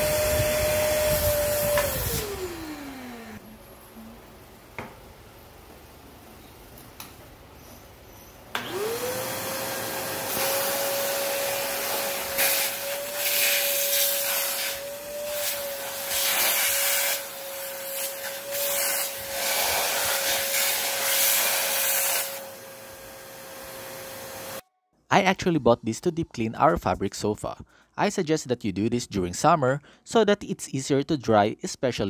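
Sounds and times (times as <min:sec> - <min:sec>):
vacuum cleaner motor whine: 0:00.0 - 0:04.0, 0:08.5 - 0:24.6.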